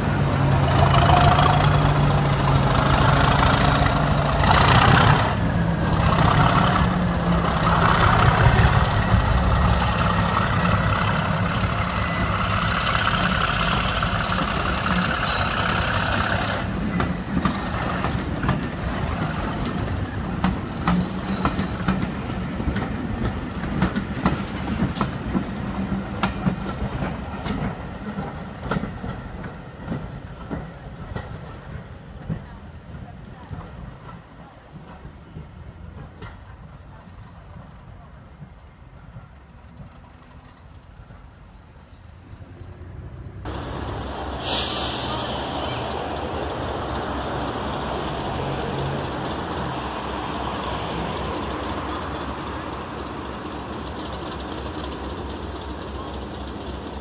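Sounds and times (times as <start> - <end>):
diesel locomotive engine under load: 0.0 - 57.0
wheels clicking over rail joints: 0.1 - 41.4.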